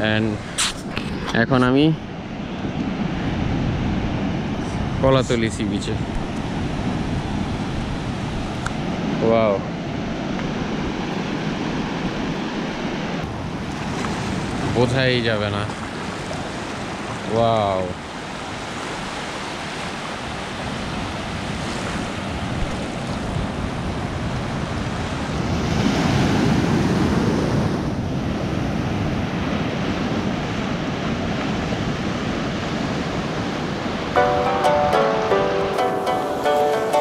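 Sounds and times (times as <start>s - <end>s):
surf washing in: 0.0s - 37.0s.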